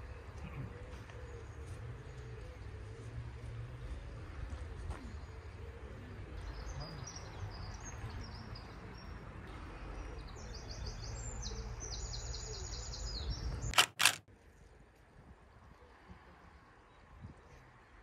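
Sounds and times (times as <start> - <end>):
songbirds chirping and trilling: 0.0 - 14.8
sharp clicks: 13.7 - 14.2.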